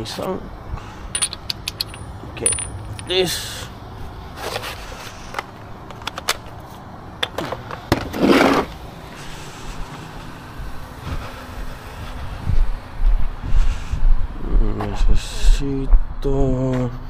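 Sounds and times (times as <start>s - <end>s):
hand tools clicking and clinking: 1.1s - 3.4s
tool scraping: 8.0s - 8.8s.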